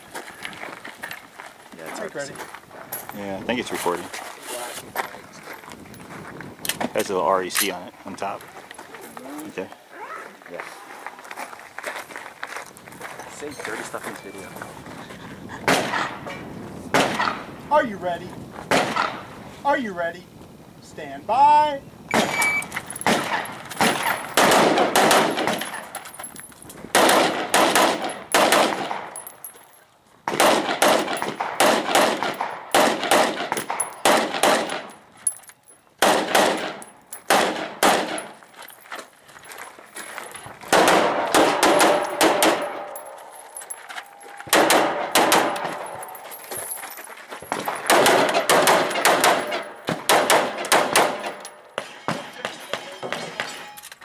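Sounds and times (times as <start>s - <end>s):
rapid rifle fire: 16.9s - 17.4s, 18.7s - 19.2s, 23.0s - 25.8s, 26.9s - 29.2s, 30.3s - 34.9s, 36.0s - 38.3s, 40.7s - 42.8s, 44.5s - 45.8s, 47.8s - 51.4s.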